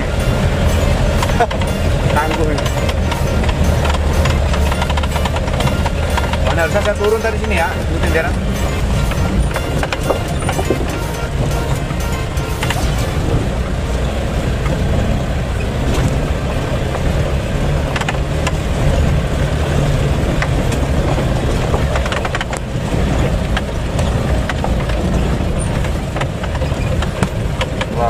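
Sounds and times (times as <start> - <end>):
knocks and rattles: 0.0 - 13.6, 20.2 - 28.0
diesel engine running: 0.0 - 28.0.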